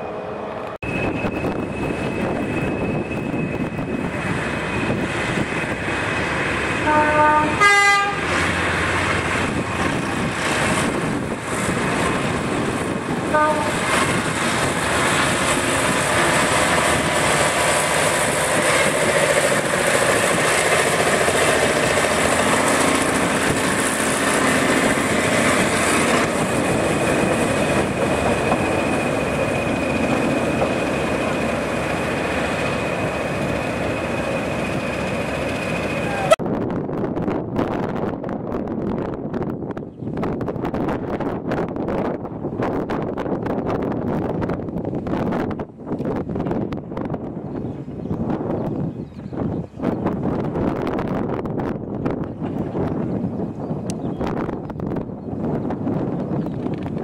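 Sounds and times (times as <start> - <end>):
locomotive horn toots: 6.8 - 8.3, 13.3 - 14.0.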